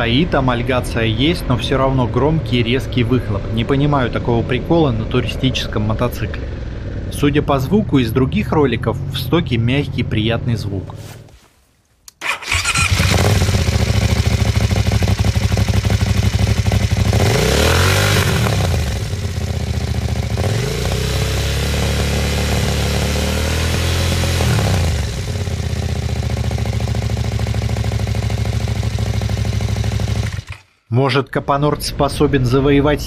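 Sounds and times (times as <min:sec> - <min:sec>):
motorcycle engine revving: 0:12.2 - 0:30.9
motorcycle engine idling: 0:12.4 - 0:23.1, 0:24.3 - 0:30.7.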